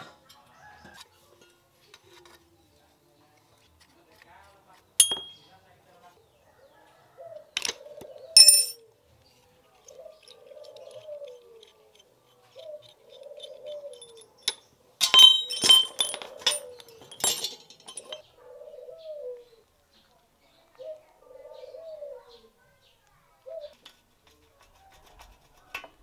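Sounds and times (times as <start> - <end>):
metal parts clinking: 5.0 - 5.4, 8.4 - 8.8, 13.4 - 18.2
dove cooing: 6.5 - 8.6, 9.8 - 11.8, 12.4 - 14.4, 16.0 - 17.2, 17.9 - 19.7, 20.8 - 22.6, 23.3 - 23.8.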